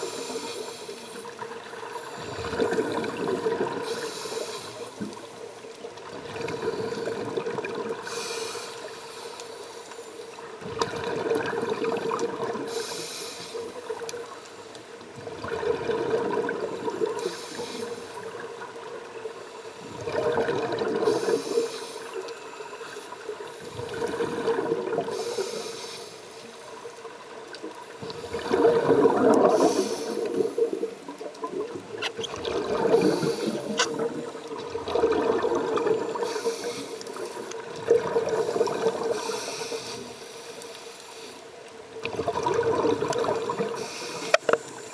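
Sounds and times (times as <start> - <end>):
regulator bubbles gurgling: 0.0 - 9.0, 10.3 - 14.4, 15.0 - 25.6, 26.4 - 40.7, 41.6 - 44.9
regulator hiss: 3.8 - 5.7, 8.0 - 10.4, 12.7 - 14.4, 17.2 - 18.4, 25.1 - 26.6, 33.0 - 34.4, 43.7 - 44.9.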